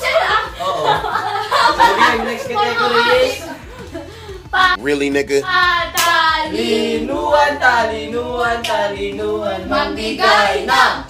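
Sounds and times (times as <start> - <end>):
children singing unaccompanied: 5.5 - 11.0.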